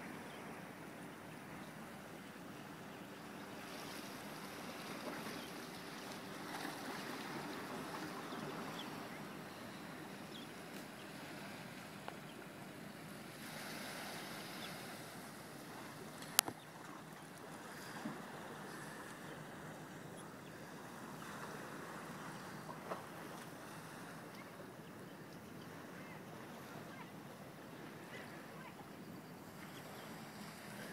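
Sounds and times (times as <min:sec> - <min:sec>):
waves lapping at rocks: 0:03.4 - 0:09.2, 0:10.7 - 0:19.7.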